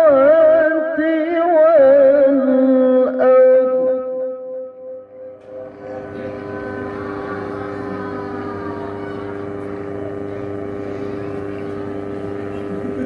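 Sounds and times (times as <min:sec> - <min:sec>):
man reciting through loudspeakers: 0:00.0 - 0:04.6.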